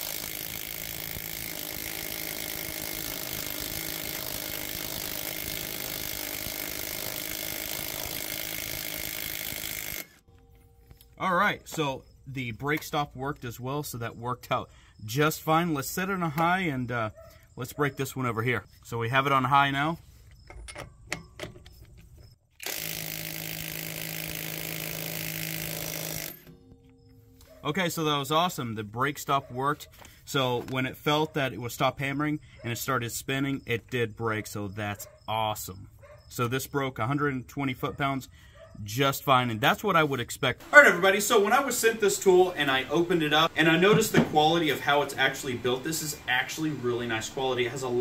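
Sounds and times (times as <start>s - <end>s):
impact wrench hammering: 0.0s - 10.2s, 22.6s - 26.8s.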